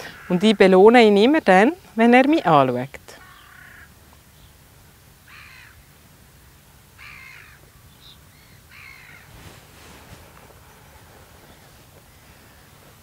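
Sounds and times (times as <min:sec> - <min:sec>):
crow cawing: 0:00.0 - 0:00.4, 0:03.2 - 0:03.9, 0:05.3 - 0:05.8, 0:07.0 - 0:07.6, 0:08.7 - 0:09.3.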